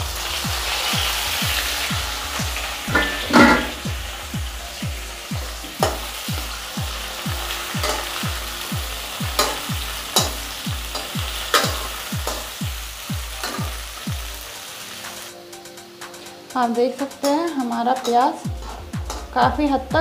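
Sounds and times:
background music beat: 0.0 - 20.0
onion sizzling in hot oil: 0.0 - 20.0
ladle knocking against pan: 2.9 - 3.8.

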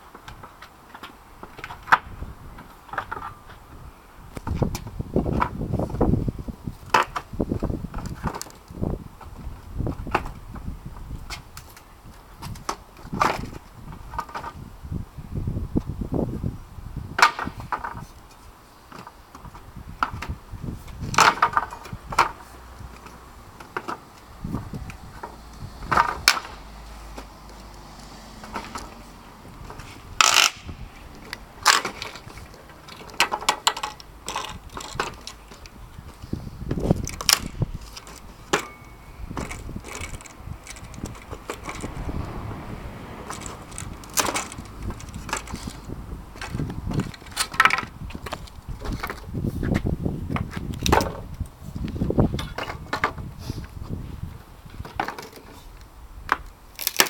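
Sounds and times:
boards clattering onto paving: 0.1 - 3.6, 6.8 - 14.6, 17.2 - 27.7, 28.4 - 42.0, 43.2 - 49.3, 50.3 - 51.3, 52.3 - 53.3, 54.7 - 57.0
boards cracking and creaking: 0.1 - 3.7, 17.2 - 38.7, 39.3 - 42.6, 43.2 - 49.3, 54.7 - 57.0.

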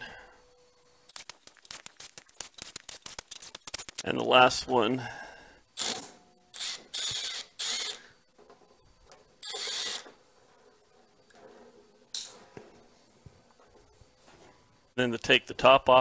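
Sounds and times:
cordless drill whirring: 6.6 - 8.2, 9.4 - 10.1.

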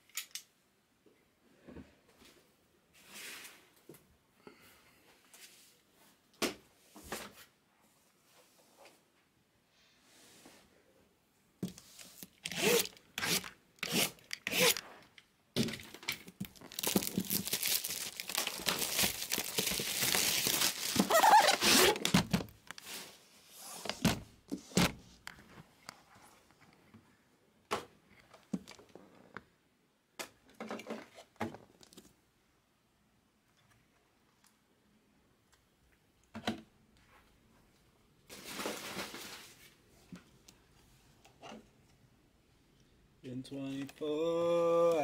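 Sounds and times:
plastic tearing and crinkling: 15.7 - 22.9.

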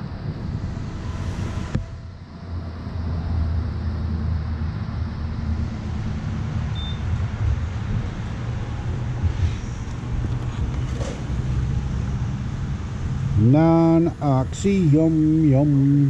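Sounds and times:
steady low rumble: 0.0 - 16.0
short high keypad beep: 6.8 - 7.0.

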